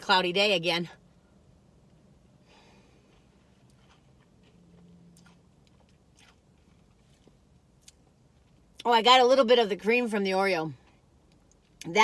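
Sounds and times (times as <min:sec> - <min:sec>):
person eating ice cream: 0:02.9 - 0:08.8.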